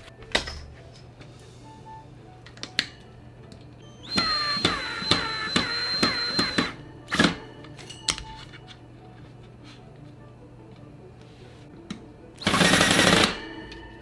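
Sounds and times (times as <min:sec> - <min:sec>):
cordless drill whining: 0:03.8 - 0:07.5.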